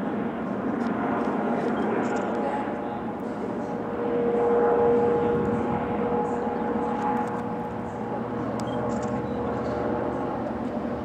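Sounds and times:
train hum: 0.0s - 11.0s
electric train rumbling: 3.4s - 11.0s.

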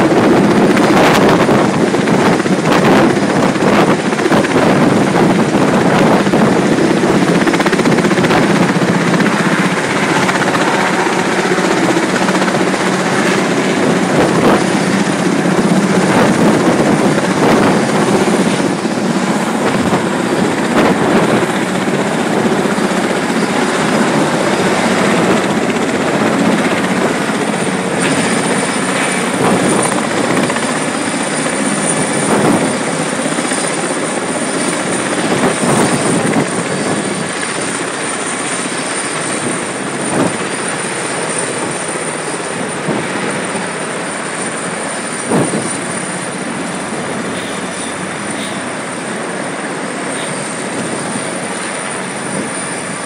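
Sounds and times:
helicopter rotor and engine: 0.0s - 53.0s
thin high whine: 44.8s - 53.0s.

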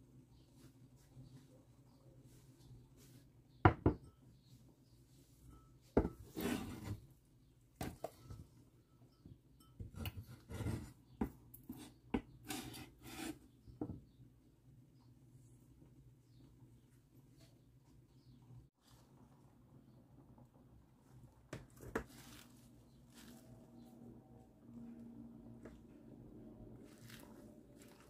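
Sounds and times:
knife scraping on cutting board: 6.1s - 7.0s, 9.9s - 11.0s, 11.7s - 13.5s.

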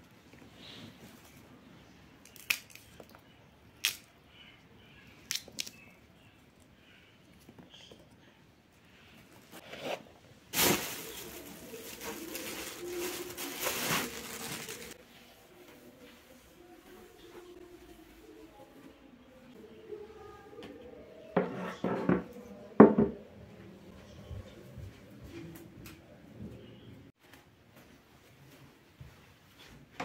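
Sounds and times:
pea pods snapping open: 2.2s - 3.2s, 3.8s - 4.1s, 5.2s - 5.8s
loud rustling crinkling: 10.5s - 15.0s.

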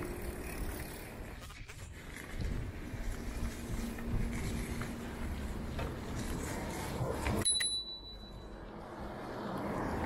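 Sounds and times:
bike rolling rumble: 0.0s - 7.4s, 8.6s - 10.0s
bicycle bell ding: 7.4s - 8.6s.

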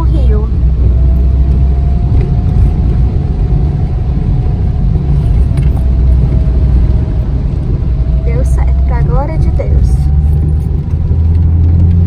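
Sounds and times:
faint steady whine: 0.0s - 11.2s
car road and engine rumble: 0.0s - 12.0s.

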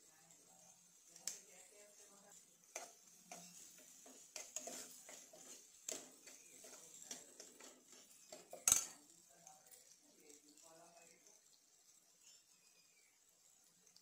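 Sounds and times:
spoon stirring onions in a pan: 0.0s - 14.0s
spoon scraping and clinking on pan: 0.3s - 10.6s.

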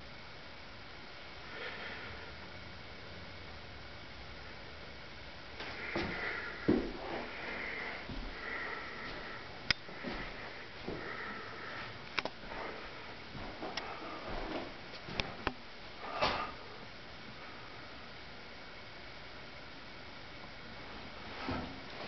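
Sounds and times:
person breathing and sniffing: 1.4s - 2.4s, 5.6s - 14.8s.

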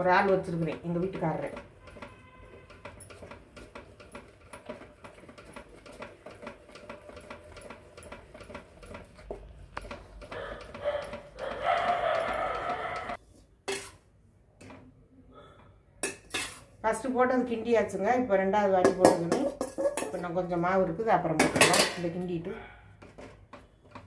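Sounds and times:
paddle stirring thick batter: 0.0s - 14.0s.

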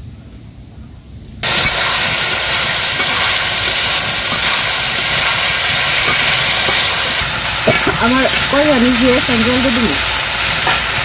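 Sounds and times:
metal spatula stirring: 1.4s - 9.0s, 10.4s - 11.0s
vegetables sizzling in hot oil: 1.4s - 11.0s.

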